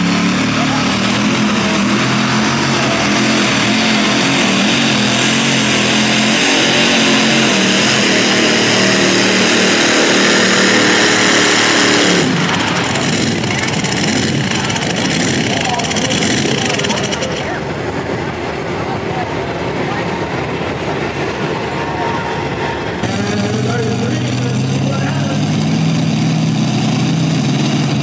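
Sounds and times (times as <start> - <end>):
tractor engine at full throttle: 0.0 - 28.0.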